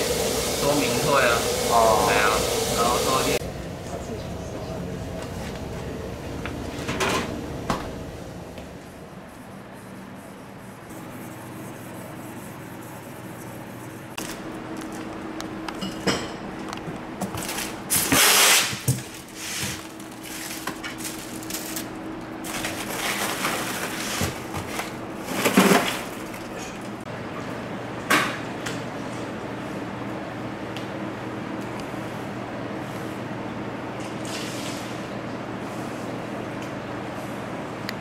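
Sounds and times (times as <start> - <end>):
steady low hum: 0.0 - 18.1
polystyrene and ice scraping: 17.9 - 26.2.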